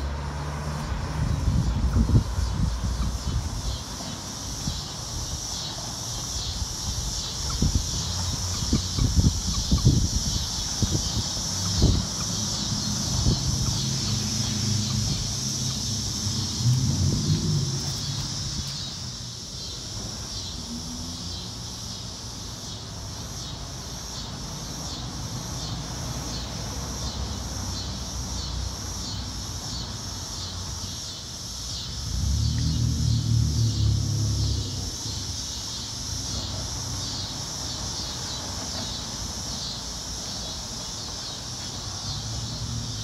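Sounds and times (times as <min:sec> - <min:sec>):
high-pitched outdoor buzz: 0:00.0 - 0:43.0
chickens clucking: 0:07.4 - 0:10.0.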